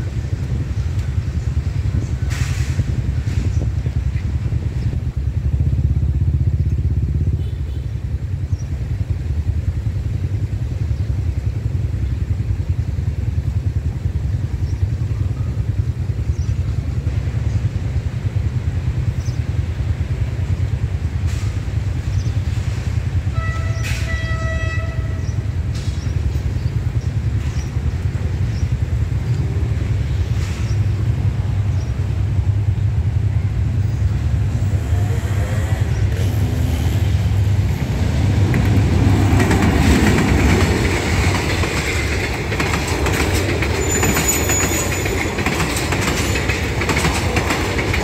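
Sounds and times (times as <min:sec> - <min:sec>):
motorbikes and traffic idling: 0:00.0 - 0:48.0
vehicle horn: 0:23.3 - 0:25.4.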